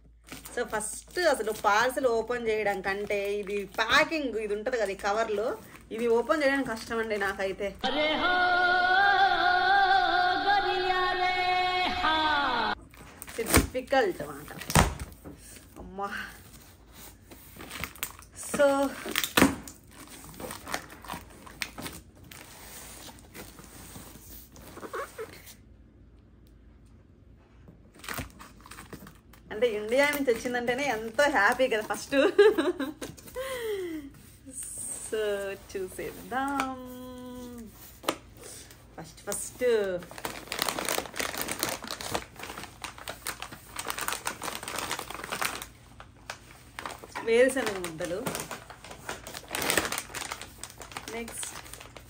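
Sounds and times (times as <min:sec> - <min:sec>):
plastic wrapping crinkling: 0:00.1 - 0:07.6, 0:16.4 - 0:25.6, 0:27.9 - 0:52.0
cardboard crackling and rustling: 0:39.2 - 0:52.0.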